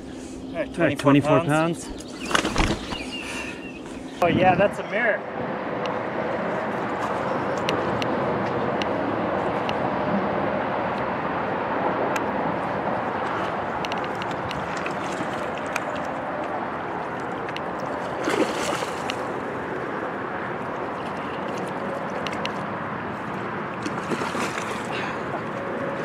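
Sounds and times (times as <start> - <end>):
wind and water rushing: 4.0 - 26.0
fish splashing in water: 13.1 - 26.0.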